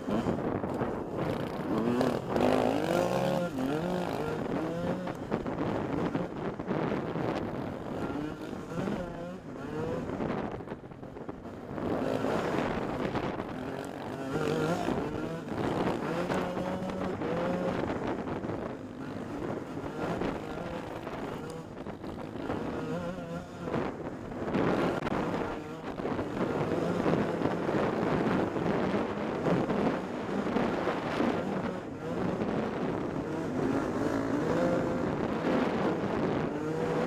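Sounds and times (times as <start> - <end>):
dirt bike engine revving: 0.0 - 37.0
wind on microphone: 0.0 - 37.0.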